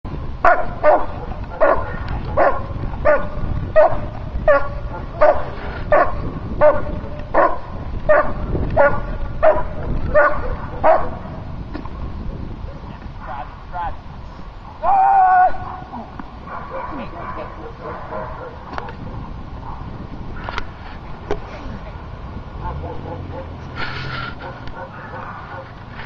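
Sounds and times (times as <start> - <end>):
dog barking: 0.4 - 11.4, 15.6 - 19.9, 22.6 - 23.6, 24.4 - 25.8.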